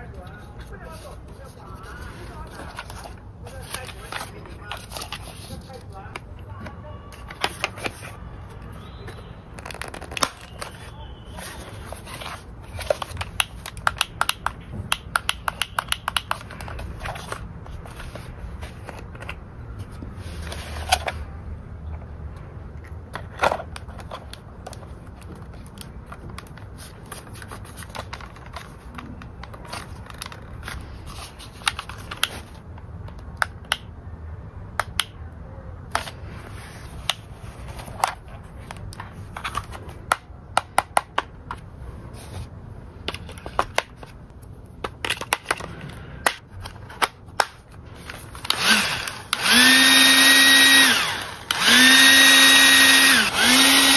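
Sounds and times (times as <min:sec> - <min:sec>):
plastic toy clicks and taps: 0:13.1 - 0:16.5.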